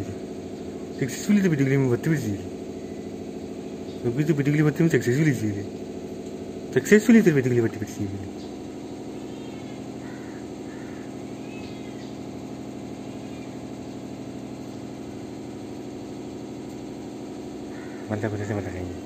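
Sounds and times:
motor humming: 0:00.0 - 0:19.0
faint high chirps: 0:10.9 - 0:12.3, 0:13.0 - 0:13.6.

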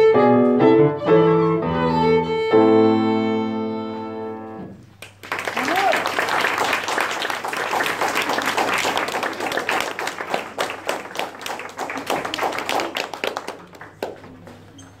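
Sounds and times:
applause: 0:05.0 - 0:14.7.

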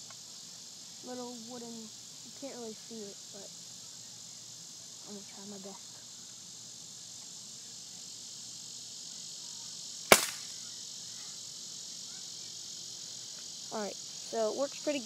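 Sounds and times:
air rifle firing: 0:10.1 - 0:10.5.

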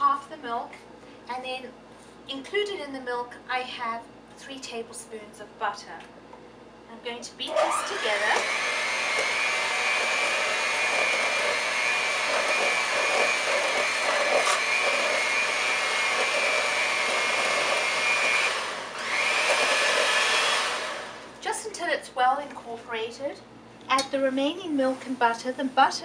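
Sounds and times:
electric mixer whirring: 0:07.4 - 0:21.4.

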